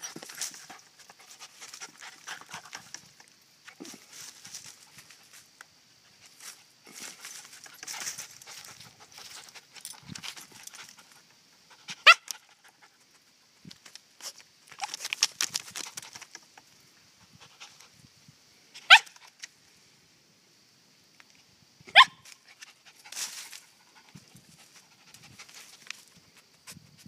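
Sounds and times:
dog yips: 11.9 - 12.3, 18.8 - 19.2, 21.9 - 22.2.

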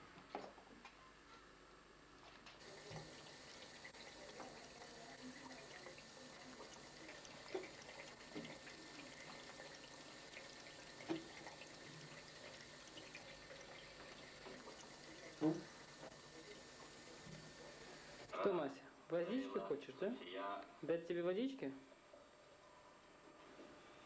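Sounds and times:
tap trickling into sink: 2.6 - 16.2.

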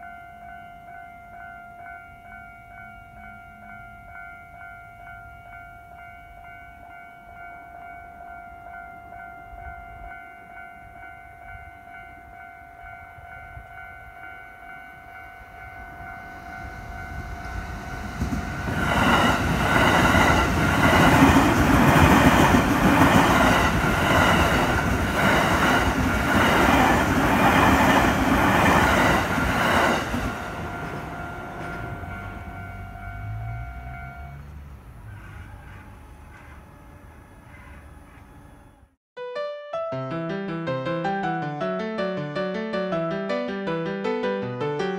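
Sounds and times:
level crossing alarm ringing: 0.0 - 34.4
train passing: 0.0 - 39.0.

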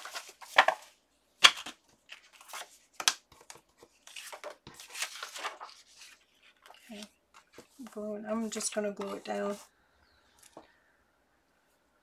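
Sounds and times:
paper rustling and sliding: 0.0 - 0.9, 2.1 - 9.6.

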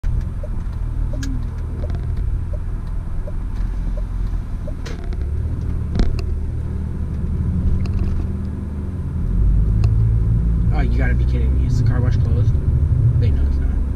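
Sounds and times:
turn signal ticking: 0.0 - 6.3
car engine and road rumble: 0.0 - 13.9.

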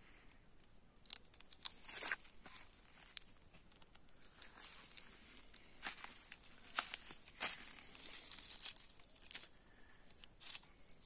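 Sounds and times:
crunching in dry leaves: 1.7 - 3.4, 4.2 - 9.6, 10.4 - 11.0.

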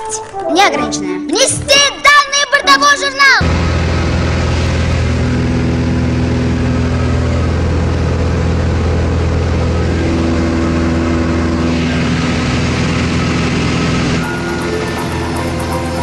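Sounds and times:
propeller plane engine droning: 3.4 - 16.0.

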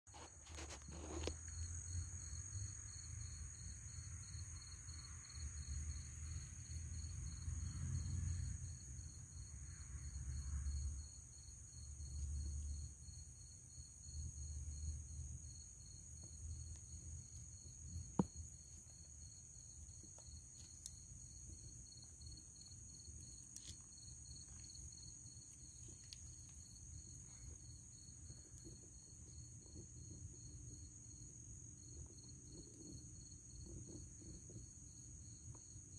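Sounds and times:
crickets trilling: 0.2 - 35.9.

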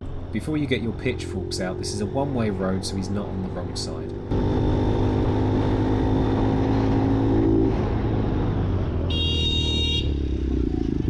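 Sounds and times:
motorcycle engine running: 0.0 - 8.2
road and wind noise: 0.0 - 11.0.

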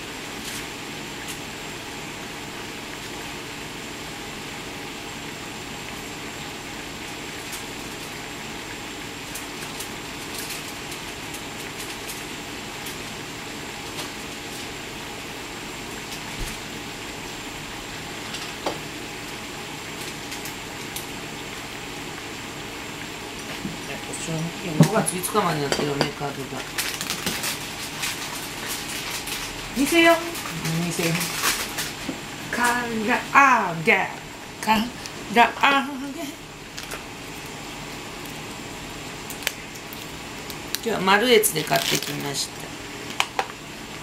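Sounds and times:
chicken deep-frying in oil: 0.0 - 44.0.

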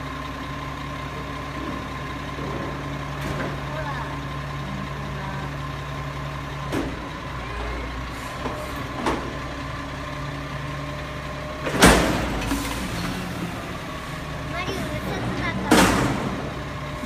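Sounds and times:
garbage truck engine running: 0.0 - 17.0
hydraulic arm lifting: 6.9 - 17.0.

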